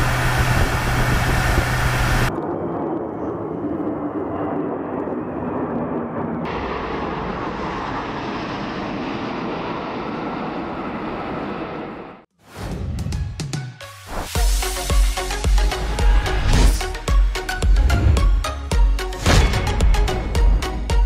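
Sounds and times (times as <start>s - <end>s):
jet engine roar: 0.0s - 12.3s.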